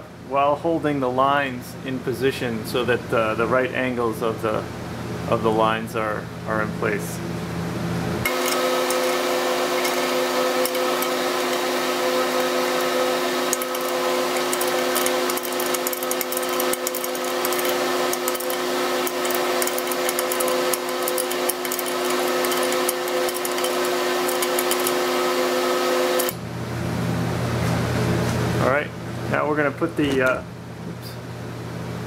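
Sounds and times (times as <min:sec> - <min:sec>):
steady mechanical hum: 0:00.0 - 0:32.0
wrench clicking: 0:13.4 - 0:25.2, 0:26.2 - 0:26.4.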